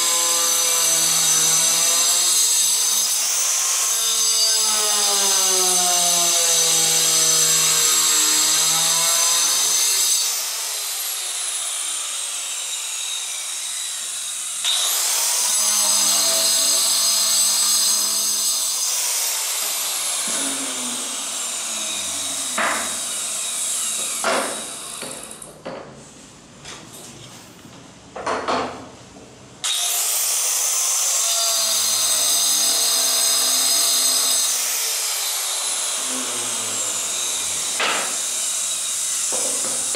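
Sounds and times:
saw motor whine running down: 10.5s - 24.0s
tile saw screeching through tile: 12.2s - 24.3s.

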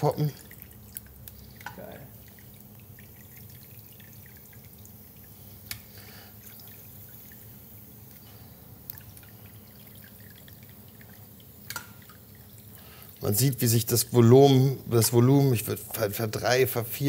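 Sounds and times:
hot oil dripping and trickling: 0.0s - 17.0s
pork rind crackling and sizzling: 0.1s - 13.3s.

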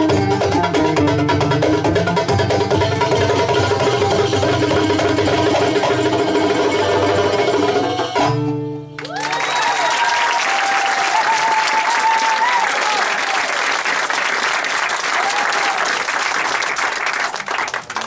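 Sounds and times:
violin oud and hand drums ensemble: 0.0s - 9.0s
audience applause and cheering: 9.0s - 18.0s.

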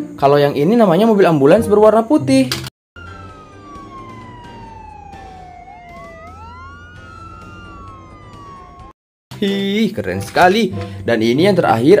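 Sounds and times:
ambulance siren wailing: 3.0s - 9.0s.

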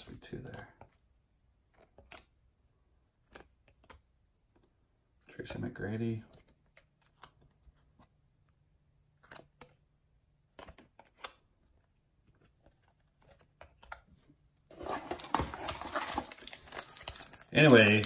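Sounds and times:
trading cards being handled: 6.2s - 18.0s
foil wrapper crinkling: 15.0s - 18.0s.

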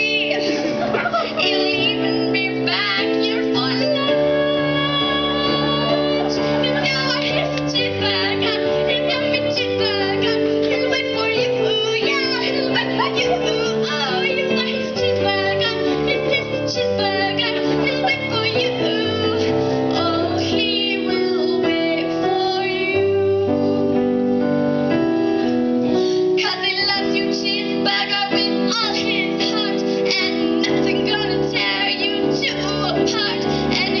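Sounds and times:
girl singing pop song: 0.0s - 24.1s, 26.0s - 34.0s
backing music with keyboard: 0.0s - 34.0s.

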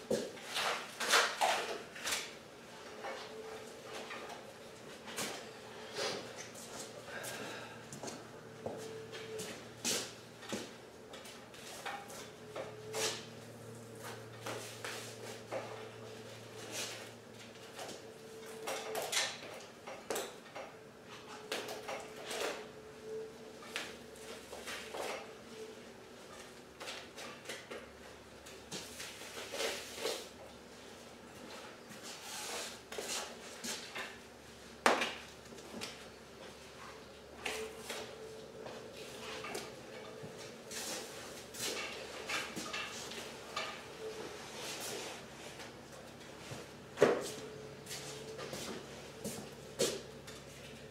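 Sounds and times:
steady low hum: 2.0s - 18.9s.

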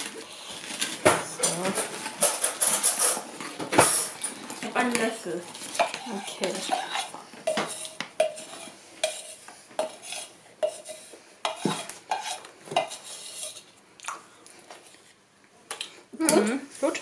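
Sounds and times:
spoon scraping plastic jug: 5.0s - 13.7s.

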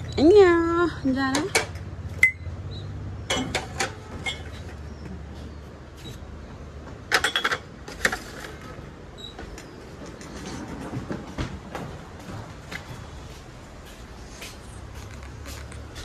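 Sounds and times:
ceramic mugs clinking together: 3.3s - 4.6s.

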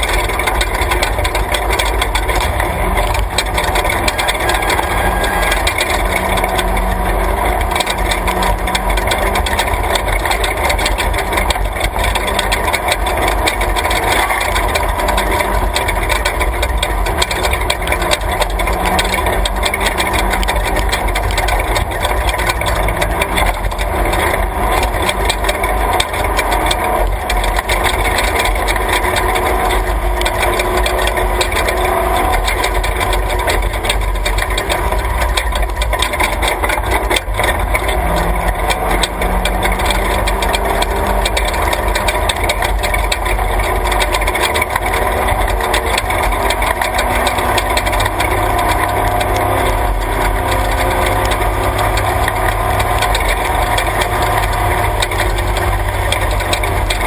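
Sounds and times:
truck body rattling and knocking: 0.0s - 57.0s
truck engine under load: 0.0s - 57.0s.

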